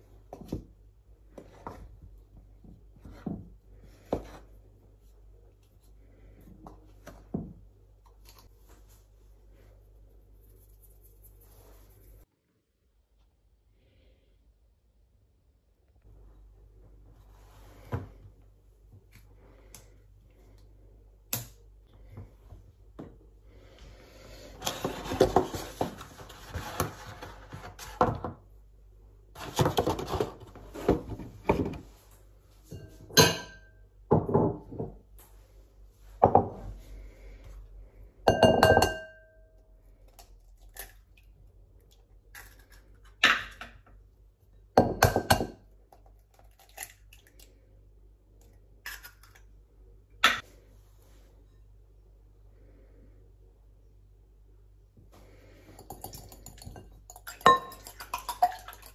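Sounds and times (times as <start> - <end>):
knocks and clinks on bowls: 38.3 - 39.4, 55.8 - 58.9.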